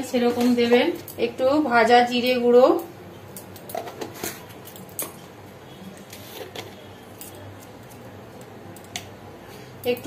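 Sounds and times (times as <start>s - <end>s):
utensils clicking and tapping: 0.0s - 1.6s, 2.2s - 10.0s.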